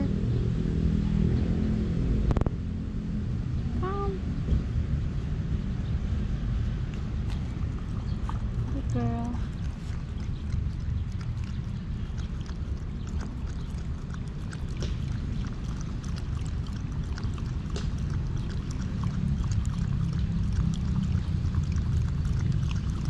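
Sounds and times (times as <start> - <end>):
steady low rumble: 0.0 - 23.0
dog lapping water from bowl: 6.7 - 23.0.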